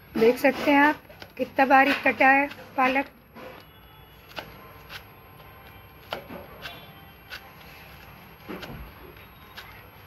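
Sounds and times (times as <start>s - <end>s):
knife chopping on wooden board: 6.0s - 7.5s, 8.4s - 9.1s.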